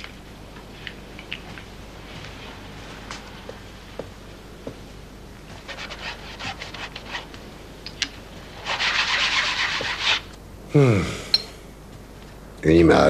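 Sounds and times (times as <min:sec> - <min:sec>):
hand rubbing a picture frame: 0:05.6 - 0:07.3, 0:08.5 - 0:10.3.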